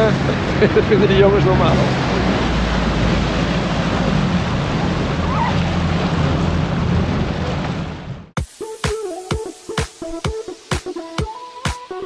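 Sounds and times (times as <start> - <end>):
water sloshing against boat: 0.0 - 8.4.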